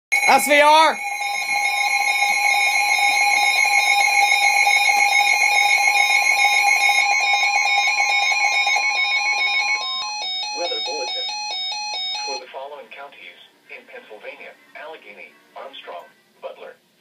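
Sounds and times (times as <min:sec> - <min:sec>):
alarm beeping: 0:00.1 - 0:12.4
steady alarm tones: 0:00.1 - 0:12.4.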